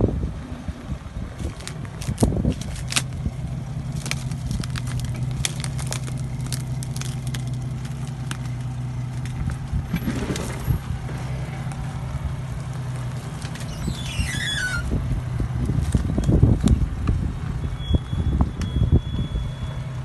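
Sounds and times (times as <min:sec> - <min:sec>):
off-road engine running at low revs: 0:00.0 - 0:20.0
dry branches snapping and scraping: 0:01.4 - 0:17.2.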